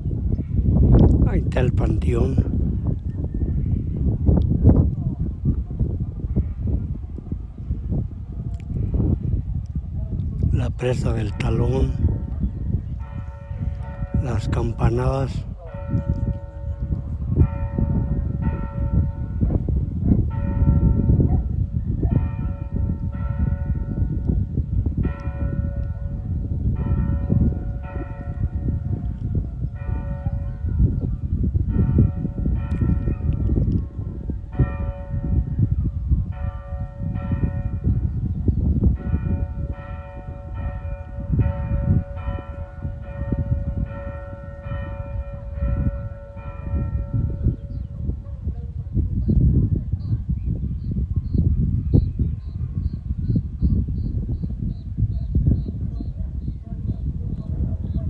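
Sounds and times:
church bells pealing: 13.0 - 24.3, 25.0 - 31.0, 31.6 - 47.8.

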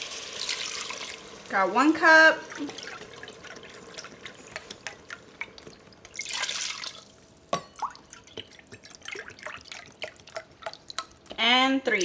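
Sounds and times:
liquid pouring into metal cup: 2.5 - 11.3
liquid dripping: 2.5 - 12.0.

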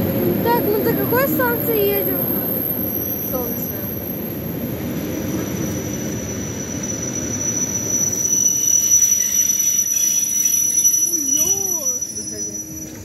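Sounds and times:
train wheels rumbling: 0.0 - 13.0
high-pitched squeal: 5.4 - 13.0.

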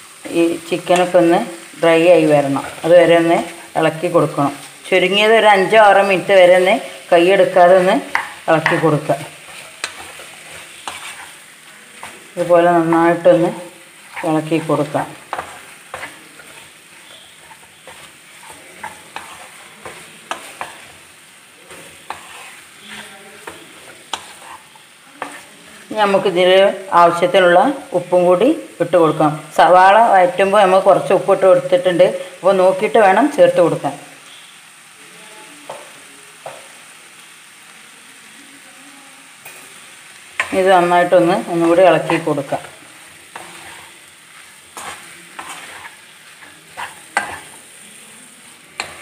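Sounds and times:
chicken sizzling in a pan: 0.0 - 49.0
spatula scraping and knocking pan: 7.3 - 25.5, 40.4 - 47.7, 48.8 - 49.0.

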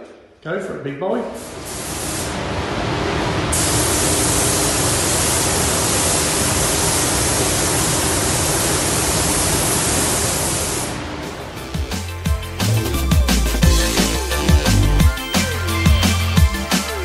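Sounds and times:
spray gun hissing: 1.3 - 2.4, 3.5 - 11.0.

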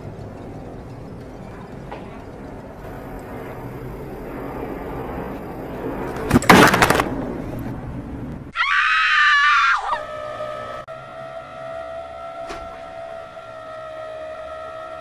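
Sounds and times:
loud crash: 6.3 - 7.2
shrill wavering scream: 8.5 - 15.0.

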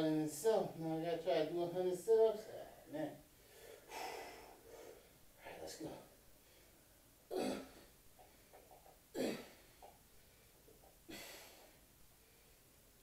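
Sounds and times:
man breathing hard: 3.4 - 5.2, 9.4 - 12.6.

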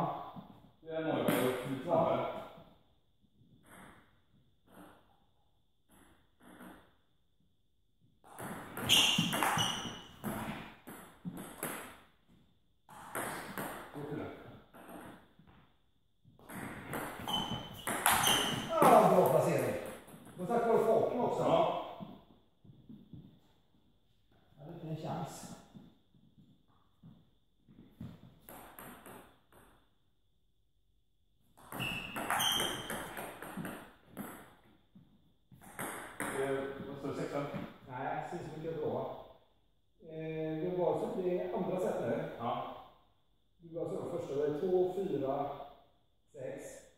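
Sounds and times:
shoes squeaking on floor: 8.3 - 11.9, 16.4 - 23.5, 31.6 - 37.8.

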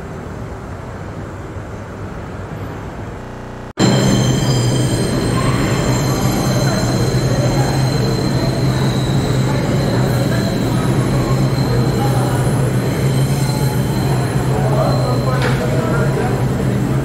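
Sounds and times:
subway train rumble: 0.0 - 17.0
wheel squeal: 3.8 - 16.2.

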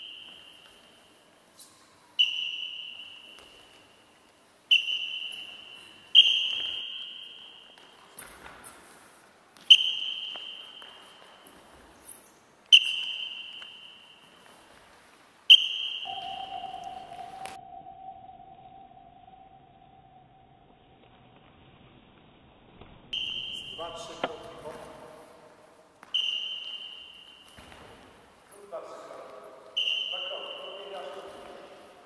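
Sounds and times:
high ringing tone: 15.8 - 20.8.

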